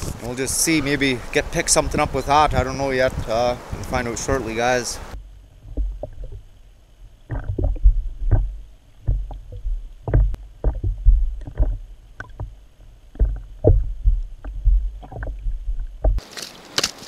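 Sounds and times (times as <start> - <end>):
underwater thuds and rumbles: 5.6 - 6.5, 7.2 - 16.2.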